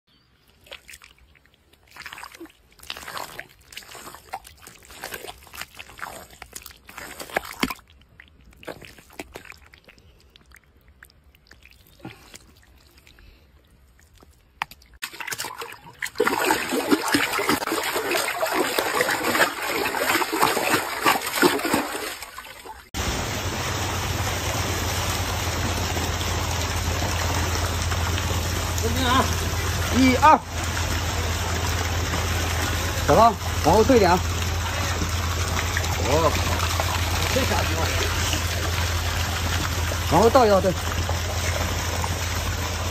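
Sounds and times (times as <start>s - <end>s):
hands squelching in wet mud: 0.3s - 23.0s, 25.2s - 42.9s
water splashing: 0.4s - 42.9s
rushing water: 0.5s - 9.7s, 15.0s - 42.9s
low hum: 23.0s - 42.9s.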